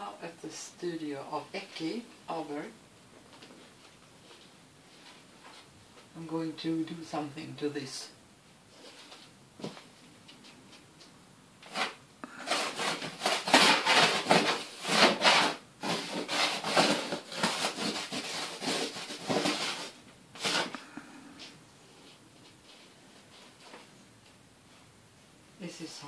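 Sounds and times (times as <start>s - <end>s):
drawing stick scratching canvas: 11.6s - 20.8s.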